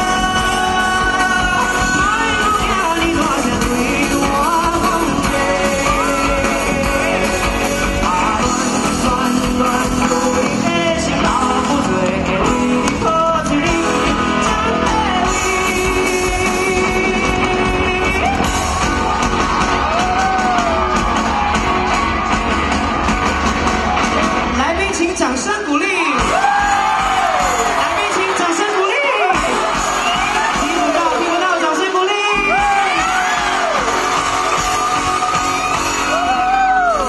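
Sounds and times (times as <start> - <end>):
man singing: 0.0 - 18.7
live pop-rock band: 0.0 - 37.0.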